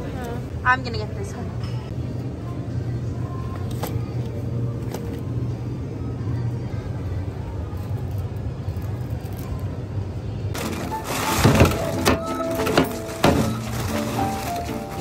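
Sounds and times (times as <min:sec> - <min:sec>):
background music with light melody: 0:10.6 - 0:15.0
plastic bags crinkling: 0:10.6 - 0:15.0.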